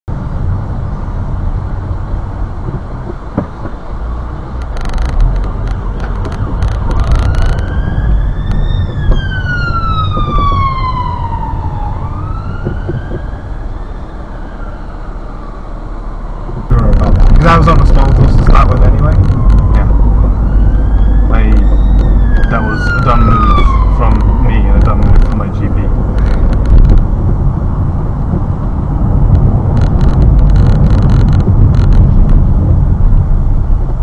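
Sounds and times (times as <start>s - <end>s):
car engine rumble: 0.0s - 34.0s
road noise: 0.0s - 34.0s
ambulance siren wailing: 5.9s - 16.4s, 17.2s - 27.0s.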